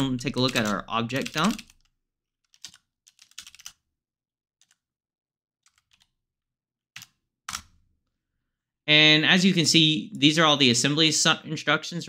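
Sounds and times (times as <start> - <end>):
computer keyboard typing: 0.0 - 3.8, 4.6 - 4.8, 5.7 - 6.1, 7.0 - 7.7.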